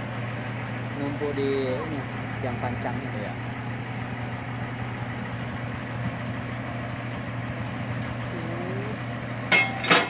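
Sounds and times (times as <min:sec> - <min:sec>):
heavy machinery engine running: 0:00.0 - 0:10.0
sharp metallic knocks: 0:09.5 - 0:10.0.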